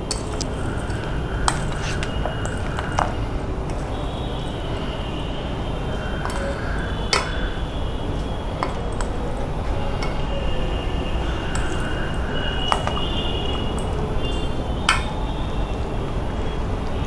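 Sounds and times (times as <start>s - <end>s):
spoon scraping steel bowl: 0.2s - 2.9s.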